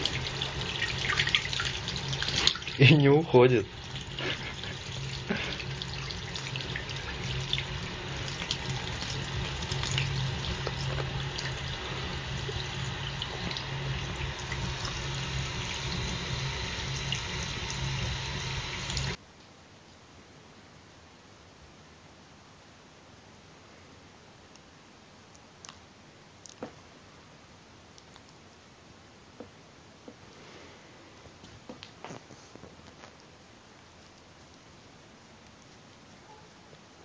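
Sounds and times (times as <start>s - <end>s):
tap water running into sink: 0.0s - 19.2s
faint hiss: 0.0s - 37.0s
low steady hum: 0.0s - 37.0s.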